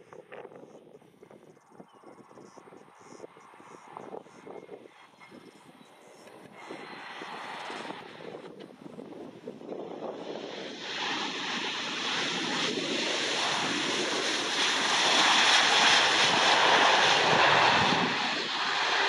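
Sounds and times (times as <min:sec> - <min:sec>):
wind on microphone: 0:00.0 - 0:19.0
jet engine rushing noise: 0:02.6 - 0:19.0.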